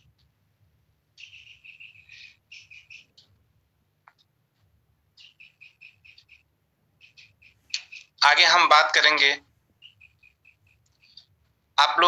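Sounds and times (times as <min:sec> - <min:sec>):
faint low hum: 0:00.0 - 0:12.0
high-pitched chirping: 0:01.2 - 0:03.3, 0:05.1 - 0:08.4, 0:09.8 - 0:11.4.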